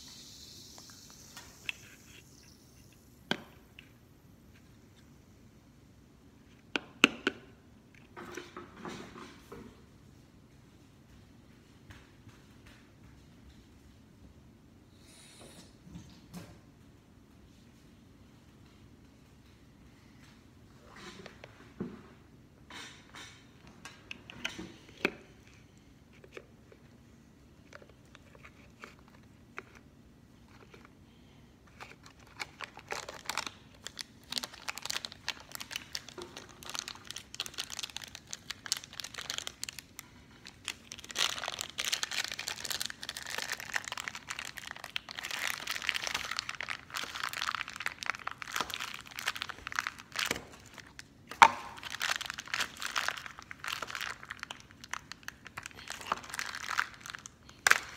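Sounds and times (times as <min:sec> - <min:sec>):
plastic wrapper crinkling: 0:31.7 - 0:57.9.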